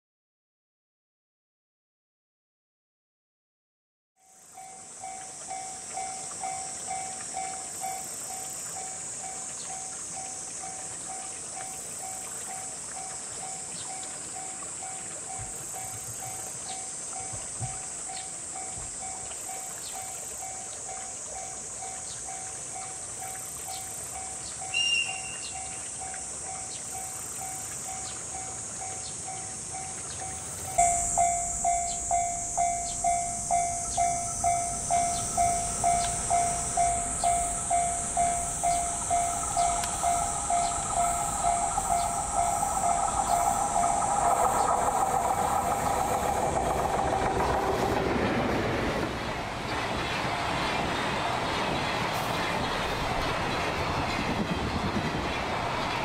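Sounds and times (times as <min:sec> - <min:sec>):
level crossing alarm bell ringing: 0:04.2 - 0:47.7
passing train rumble: 0:04.4 - 0:56.0
short high chirp: 0:24.7 - 0:25.9, 0:30.7 - 0:47.0.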